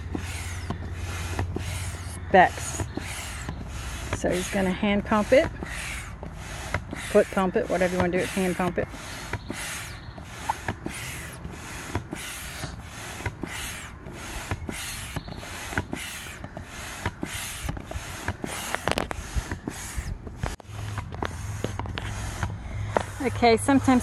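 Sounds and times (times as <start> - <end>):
air pump whooshing: 0.0 - 24.0.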